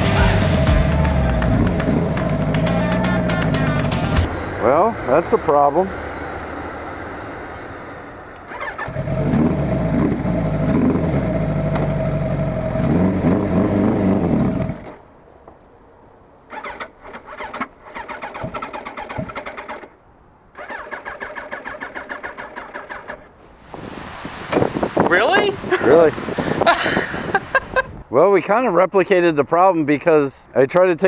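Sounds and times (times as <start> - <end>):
motorcycle engine revving: 0.0 - 15.0
starter motor cranking: 8.5 - 12.0, 16.5 - 23.4.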